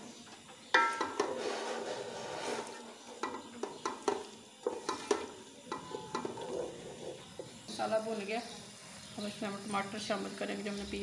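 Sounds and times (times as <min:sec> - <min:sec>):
frying sizzle: 0:00.0 - 0:11.0
spoon knocking against pot: 0:00.7 - 0:01.3, 0:03.2 - 0:07.6
wooden spoon scraping pot: 0:01.0 - 0:07.8.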